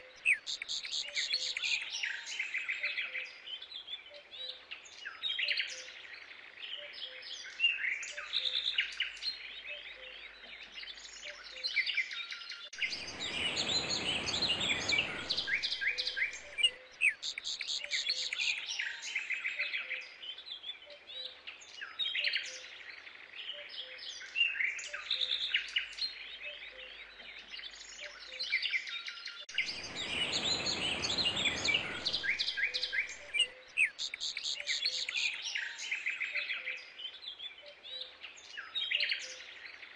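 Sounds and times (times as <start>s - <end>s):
songbirds chirping and trilling: 0.0s - 39.9s
broad rush of noise: 12.8s - 16.6s, 29.5s - 33.4s.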